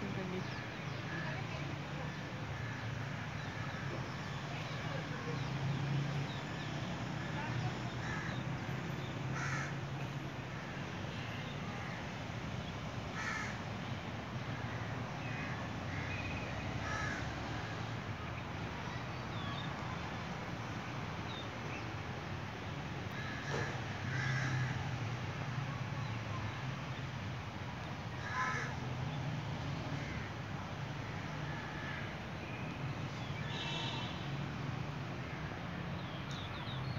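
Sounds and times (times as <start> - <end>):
bird cawing: 9.3 - 9.8, 13.2 - 13.6, 14.8 - 17.8, 23.2 - 24.8, 28.2 - 28.8.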